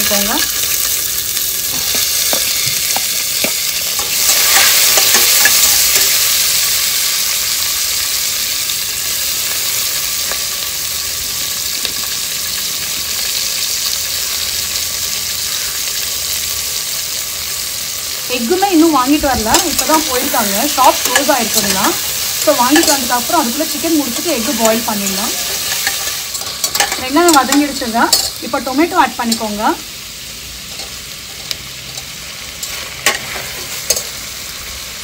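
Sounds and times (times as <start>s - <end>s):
onions sizzling in hot oil: 0.0s - 35.0s
spatula clinking on steel: 19.3s - 28.5s, 30.7s - 34.2s.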